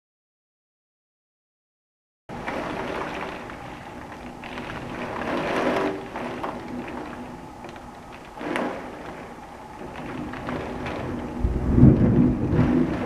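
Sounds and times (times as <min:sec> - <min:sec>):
wind and rain rushing: 0:02.3 - 0:13.0.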